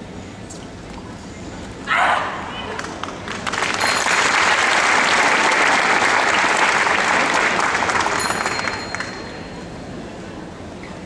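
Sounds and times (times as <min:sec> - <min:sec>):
crowd applauding: 0:03.2 - 0:09.4.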